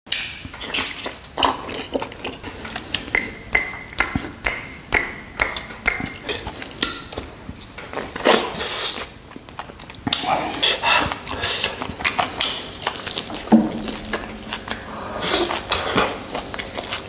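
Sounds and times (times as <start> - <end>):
chewing and biting: 7.9 - 17.0.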